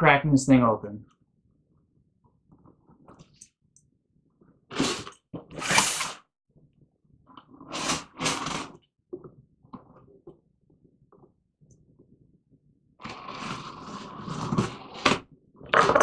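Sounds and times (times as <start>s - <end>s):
tape tearing off cardboard: 4.7s - 6.2s.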